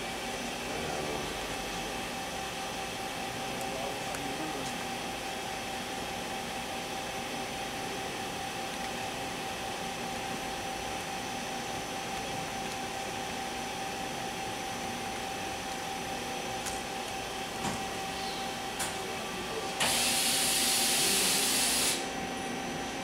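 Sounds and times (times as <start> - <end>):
machining center humming: 0.0 - 23.0
loud hiss: 19.8 - 22.1.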